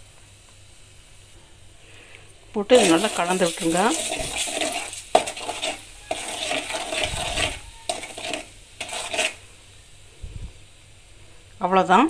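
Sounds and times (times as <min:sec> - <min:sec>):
oil sizzling softly: 0:00.0 - 0:12.0
metal spatula scraping a pan: 0:02.7 - 0:09.5.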